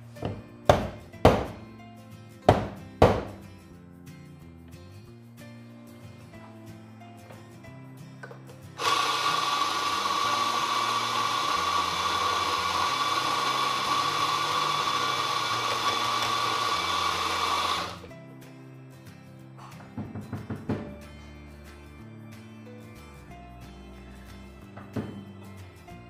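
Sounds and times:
electric coffee grinder grinding: 8.8s - 18.1s.

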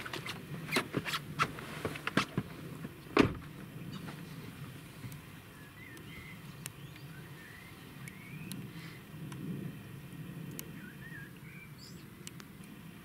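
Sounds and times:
truck door thump: 3.2s - 3.5s.

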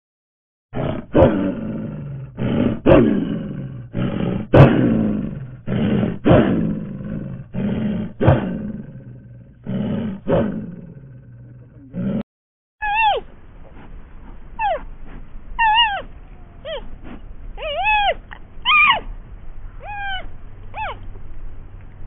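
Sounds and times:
large animal roaring grunts: 0.8s - 12.2s.

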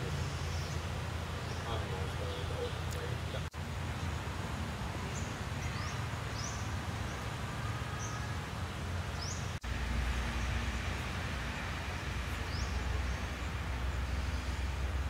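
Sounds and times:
small birds chirping: 0.2s - 4.4s, 5.0s - 8.3s, 9.1s - 9.6s.

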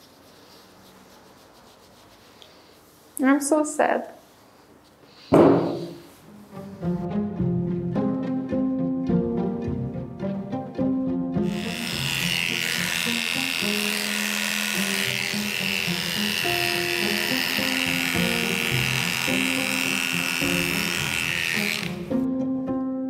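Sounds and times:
electric dog clippers running: 11.4s - 22.2s.

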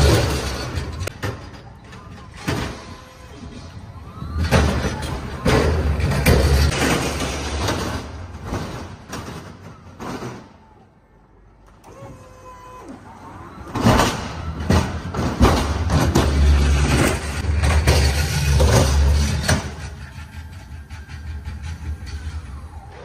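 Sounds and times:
pallet truck rolling rumble: 0.0s - 23.0s
pallet truck clanks and knocks: 13.7s - 20.6s.

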